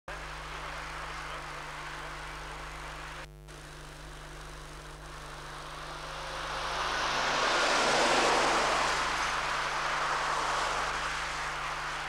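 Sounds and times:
passing vehicle rushing: 0:05.4 - 0:12.0.

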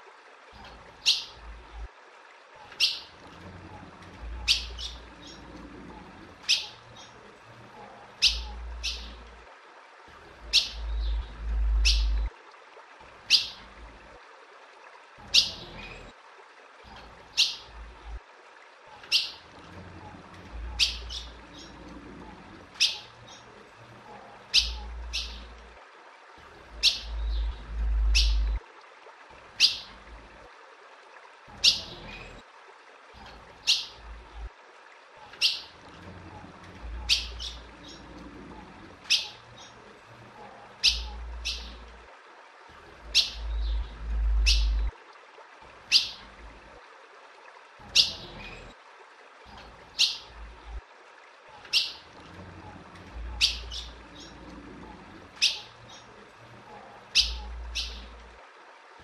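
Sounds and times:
bird chip calls: 0:01.0 - 0:01.4, 0:02.8 - 0:03.1, 0:04.4 - 0:05.4, 0:06.5 - 0:07.2, 0:08.2 - 0:09.2, 0:19.1 - 0:19.4, 0:20.7 - 0:21.8, 0:22.8 - 0:23.4, 0:24.5 - 0:25.5, 0:26.8 - 0:28.6, 0:29.6 - 0:29.9, 0:33.6 - 0:34.0, 0:35.3 - 0:35.7, 0:37.0 - 0:38.0, 0:39.1 - 0:39.7, 0:40.8 - 0:41.8, 0:43.1 - 0:44.9, 0:45.9 - 0:46.2, 0:47.9 - 0:48.2, 0:50.0 - 0:50.3, 0:51.7 - 0:52.0, 0:53.3 - 0:54.3, 0:55.4 - 0:56.0, 0:57.1 - 0:58.1
low rumble: 0:27.1 - 0:28.6, 0:43.4 - 0:44.9.

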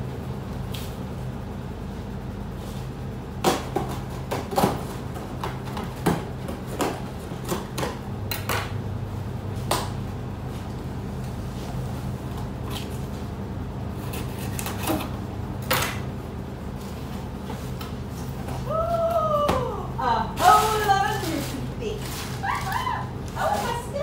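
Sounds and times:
steady low hum: 0:00.0 - 0:24.0
knife scraping cardboard: 0:14.0 - 0:15.0.

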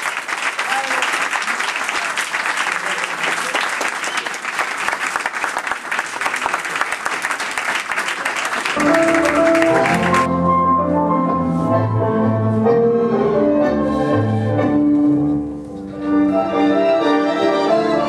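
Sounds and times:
audience applauding: 0:00.0 - 0:10.3
tango music: 0:08.8 - 0:18.0.

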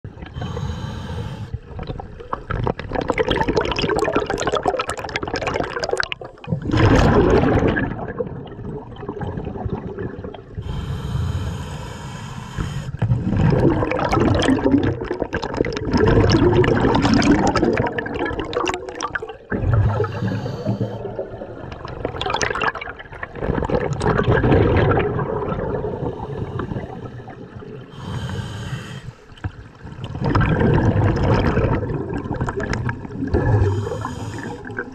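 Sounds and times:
exhaled bubbles gurgling: 0:00.1 - 0:34.9
regulator inhale hiss: 0:00.4 - 0:01.7, 0:10.6 - 0:13.1, 0:19.9 - 0:21.1, 0:26.0 - 0:29.4, 0:33.6 - 0:34.9.

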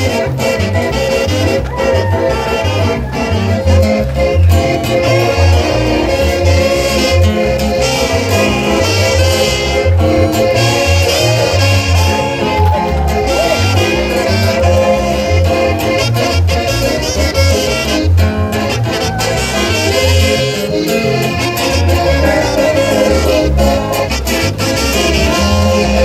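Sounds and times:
latin music with pulsing bass: 0:00.0 - 0:26.0.

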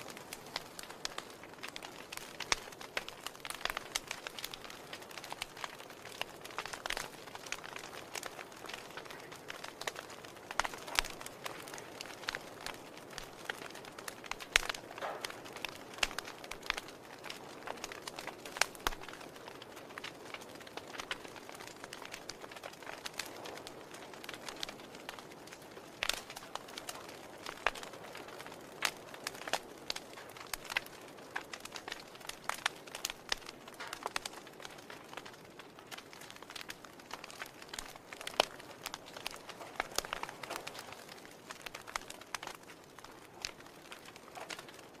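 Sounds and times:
soft steady hiss: 0:00.0 - 0:45.0
wood fire crackling: 0:00.0 - 0:45.0.

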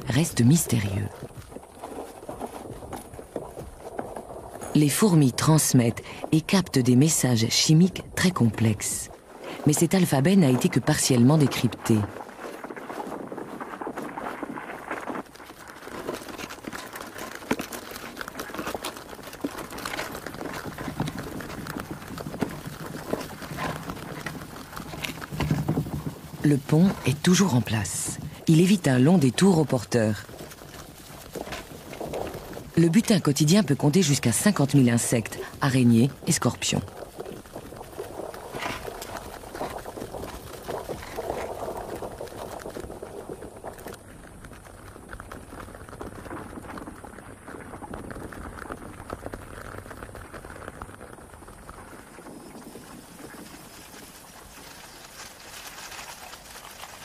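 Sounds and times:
ants swarming over leaf litter: 0:12.0 - 0:57.0.

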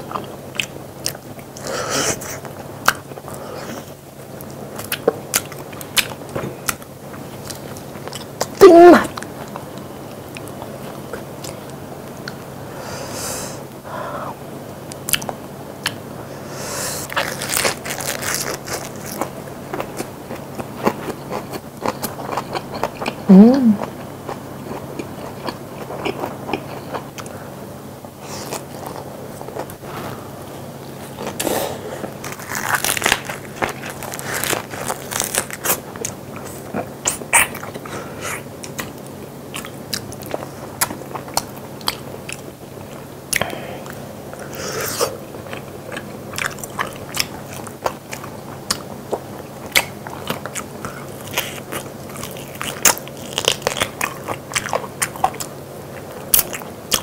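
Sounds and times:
person chewing meat: 0:17.1 - 0:27.3, 0:31.0 - 0:57.0.

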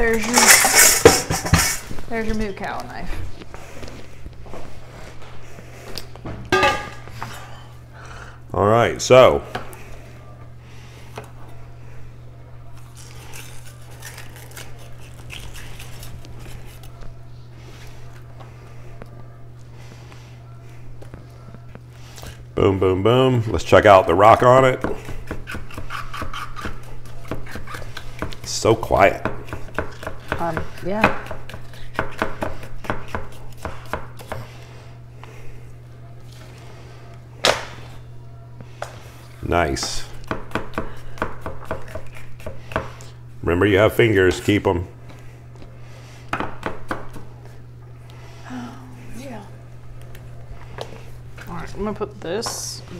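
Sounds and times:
knife chopping on cutting board: 0:24.8 - 0:34.5, 0:40.3 - 0:43.0.

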